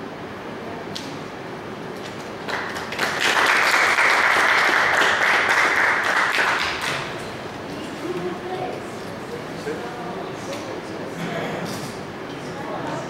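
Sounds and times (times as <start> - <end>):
audience applauding: 2.4 - 7.2.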